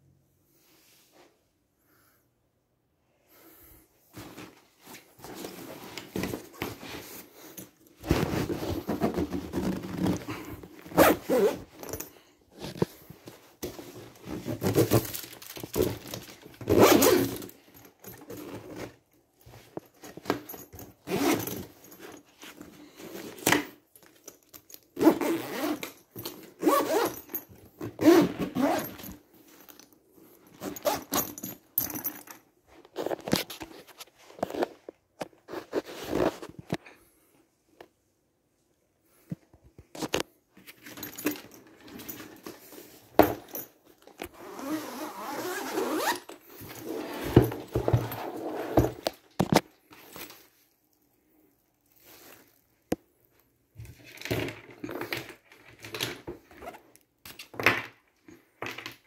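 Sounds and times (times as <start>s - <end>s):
fabric rustling and scraping: 4.1s - 23.4s, 32.6s - 37.2s, 41.8s - 50.9s, 51.8s - 52.8s
zippers pulled: 5.3s - 19.0s, 20.1s - 22.2s, 24.9s - 29.2s, 30.5s - 32.2s, 41.0s - 50.3s.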